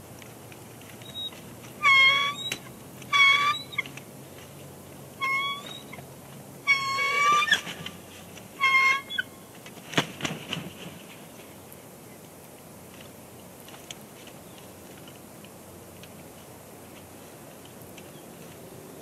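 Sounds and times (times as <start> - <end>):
eagles piping chirps: 1.1 - 3.9, 5.2 - 6.0.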